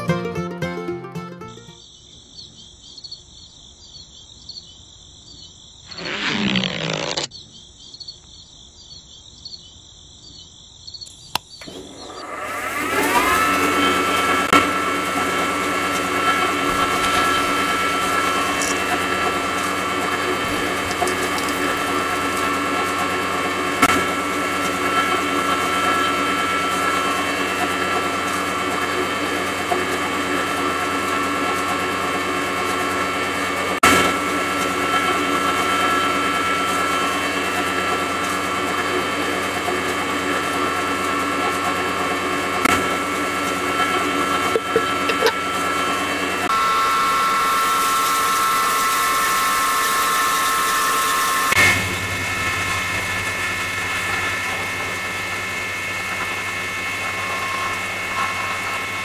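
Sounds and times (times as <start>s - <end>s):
electric motor whining: 11.6s - 32.0s, 42.7s - 59.0s.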